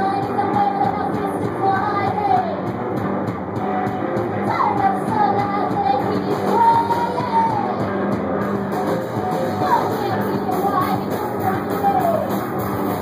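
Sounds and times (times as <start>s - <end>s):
person singing: 0.0s - 2.6s, 4.5s - 7.9s, 9.5s - 13.0s
drums: 0.0s - 13.0s
electric guitar: 0.0s - 13.0s.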